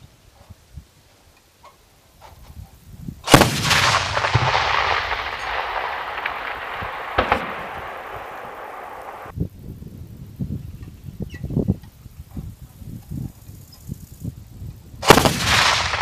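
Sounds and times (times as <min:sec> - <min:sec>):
autocannon firing burst: 0:03.3 - 0:09.3, 0:15.0 - 0:16.0
rolling echo: 0:03.3 - 0:09.3, 0:15.0 - 0:16.0
sharp bang: 0:03.3 - 0:09.3.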